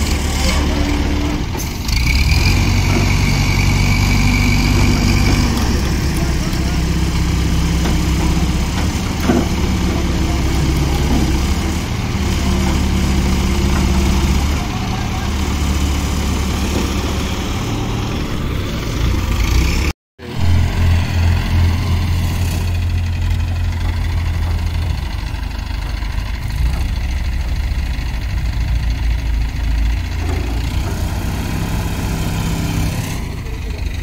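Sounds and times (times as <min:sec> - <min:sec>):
crane diesel engines rumbling: 0:00.0 - 0:34.0.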